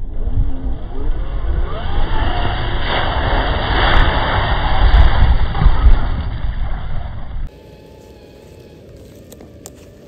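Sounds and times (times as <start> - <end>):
electric motor whining: 0.0 - 3.6, 7.4 - 10.0.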